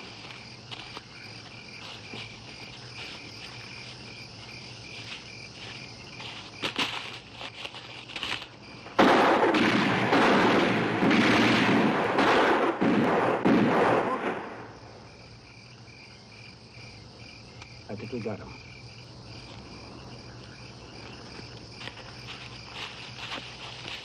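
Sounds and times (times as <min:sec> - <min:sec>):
crickets chirping: 0:00.0 - 0:24.0
submachine gun and pistol fire: 0:09.0 - 0:14.5.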